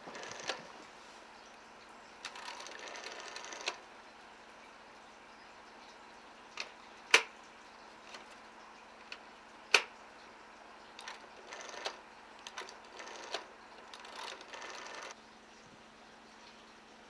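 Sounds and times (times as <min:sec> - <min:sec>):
rotary dial click: 0:00.0 - 0:00.7, 0:02.2 - 0:03.8, 0:11.0 - 0:15.2
rotary dial whirring back: 0:00.0 - 0:00.8, 0:02.2 - 0:03.8, 0:11.0 - 0:15.2.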